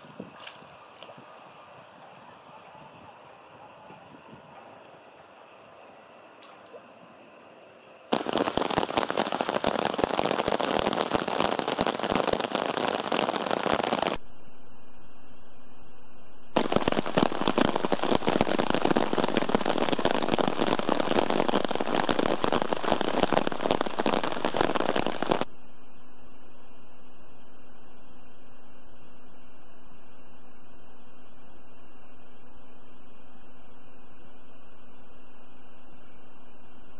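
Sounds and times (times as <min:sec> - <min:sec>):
heavy rain on water: 0:08.1 - 0:14.2, 0:16.6 - 0:25.5.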